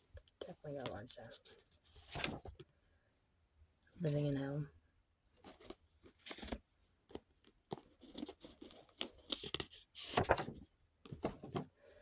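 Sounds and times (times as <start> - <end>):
paper cards rustling and flicking: 1.9 - 2.6, 5.4 - 11.7.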